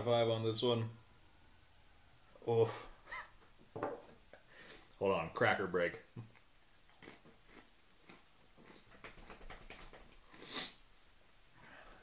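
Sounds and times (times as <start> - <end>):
cracker crunching: 6.3 - 9.3.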